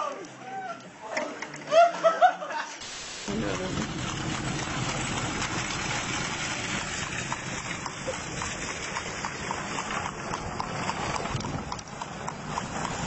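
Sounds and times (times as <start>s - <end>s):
horse hooves clopping: 3.3s - 13.0s
wind buffeting microphone: 3.4s - 13.0s.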